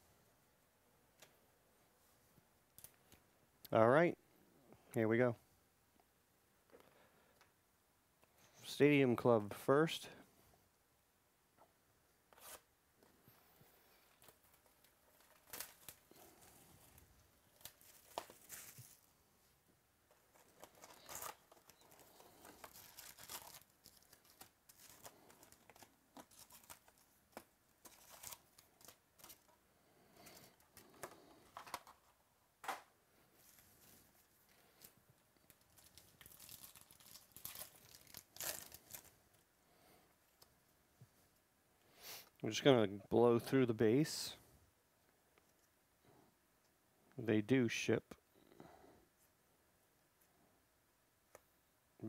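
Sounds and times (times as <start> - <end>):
card pack tearing open: 14.2 - 16.5, 20.1 - 29.5, 35.6 - 39.1
cardboard box wrapping rustling: 16.8 - 19.1, 20.1 - 27.0.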